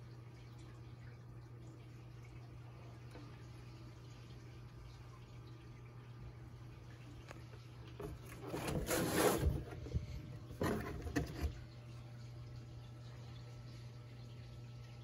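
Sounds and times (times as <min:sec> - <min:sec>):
cardboard packaging scraping: 0:08.3 - 0:10.0, 0:10.6 - 0:11.6.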